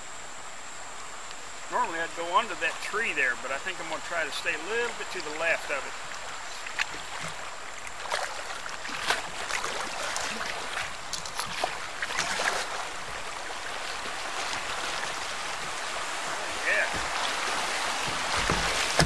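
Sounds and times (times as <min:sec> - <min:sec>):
river rapid rushing water: 0:00.0 - 0:19.0
sharp splashes and knocks: 0:05.2 - 0:19.0.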